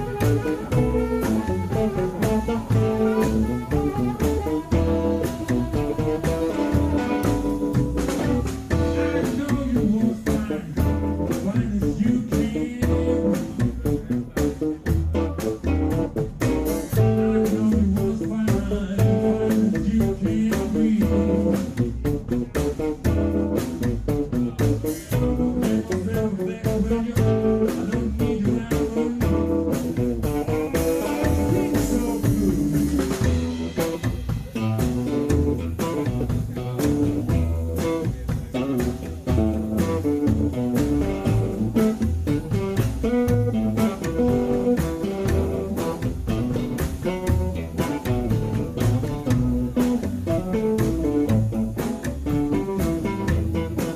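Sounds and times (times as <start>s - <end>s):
harmonica: 0.0s - 9.5s
man singing: 0.0s - 15.8s, 16.4s - 53.9s
acoustic guitar: 0.0s - 53.9s
drums: 0.0s - 53.9s
upright bass: 0.0s - 53.9s.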